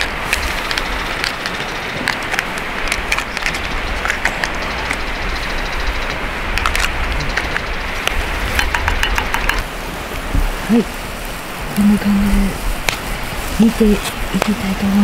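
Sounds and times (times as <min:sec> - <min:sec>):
steady rushing noise: 0:00.0 - 0:15.0
wood fire crackling and popping: 0:00.0 - 0:15.0.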